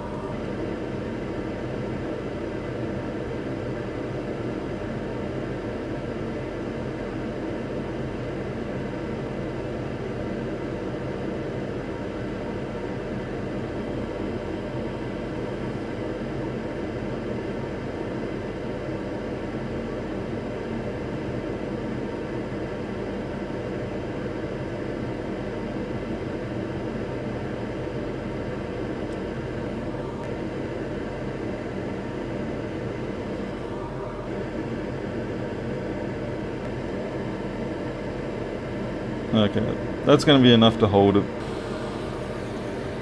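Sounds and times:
constant hum: 0:00.0 - 0:07.1, 0:23.9 - 0:43.0
equipment fans whirring: 0:00.0 - 0:43.0.

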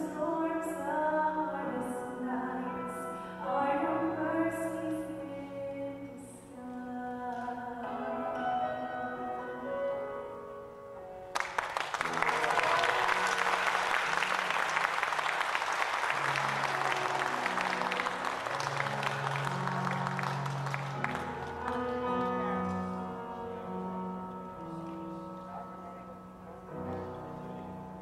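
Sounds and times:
instrumental music held notes: 0:00.0 - 0:28.0
audience applause: 0:11.3 - 0:22.8.

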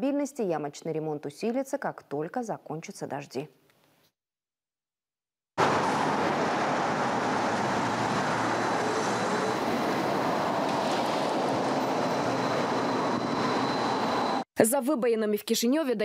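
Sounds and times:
distant city traffic: 0:05.6 - 0:14.4.

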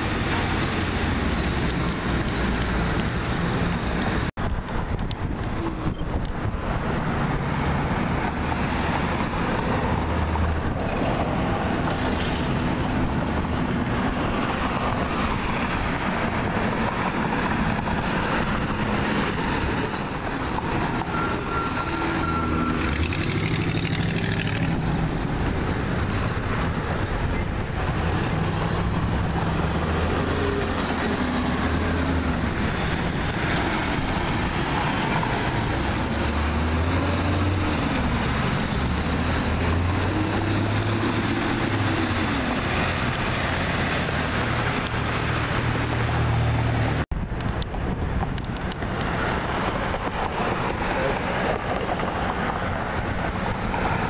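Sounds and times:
street traffic: 0:00.0 - 0:54.0
thin high squeals: 0:19.8 - 0:23.6, 0:35.4 - 0:36.9.

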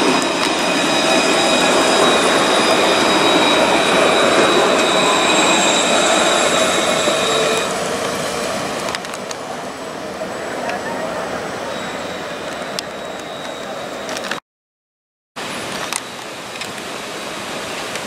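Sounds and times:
high-pitched tram whine: 0:00.0 - 0:14.4
tram running on rails: 0:00.0 - 0:14.4, 0:15.4 - 0:18.0.

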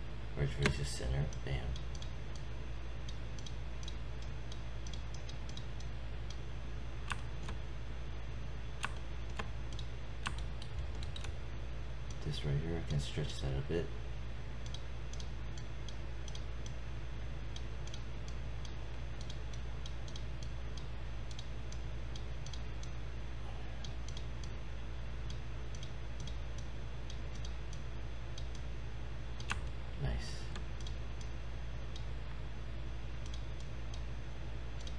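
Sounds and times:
low hum: 0:00.0 - 0:34.9
computer mouse clicking: 0:00.6 - 0:06.4, 0:07.0 - 0:07.6, 0:08.8 - 0:11.4, 0:14.6 - 0:16.8, 0:17.5 - 0:23.0, 0:23.8 - 0:24.6, 0:25.2 - 0:28.7, 0:29.4 - 0:29.7, 0:30.5 - 0:31.3, 0:33.2 - 0:34.1.

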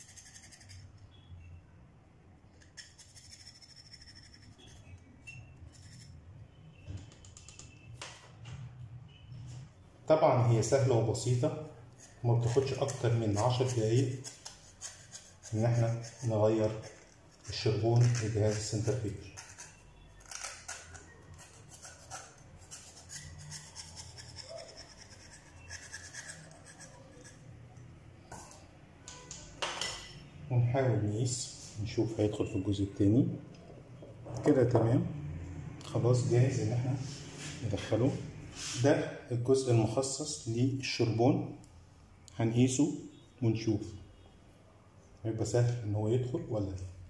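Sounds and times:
knife scraping carbon brush: 0:00.0 - 0:01.2, 0:02.6 - 0:06.2, 0:11.9 - 0:27.5.

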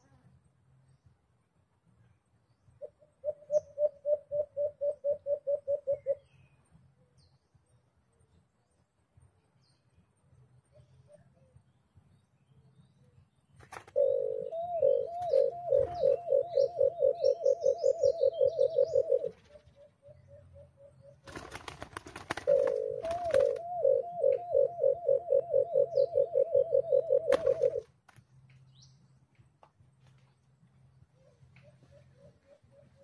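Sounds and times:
dove low hooting calls: 0:02.8 - 0:06.3, 0:10.7 - 0:11.6, 0:13.6 - 0:27.9, 0:31.0 - 0:33.0
wings flapping: 0:13.6 - 0:14.0, 0:21.2 - 0:23.7, 0:27.3 - 0:28.2.

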